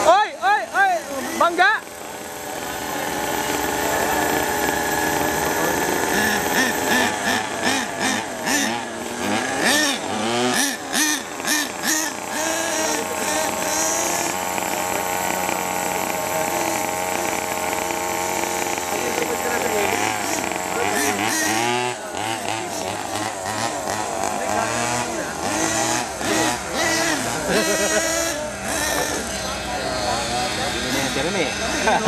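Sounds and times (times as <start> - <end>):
small two-stroke engine revving: 0.0 - 32.0.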